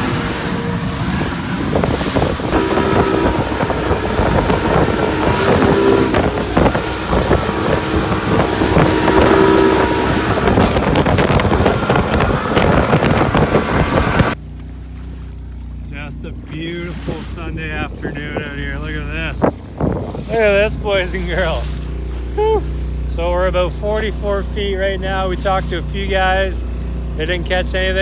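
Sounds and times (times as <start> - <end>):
wind buffeting on microphone: 0.0 - 14.4, 16.6 - 22.8
hull slapping on waves: 0.0 - 23.0
motorboat engine drone: 0.0 - 28.0.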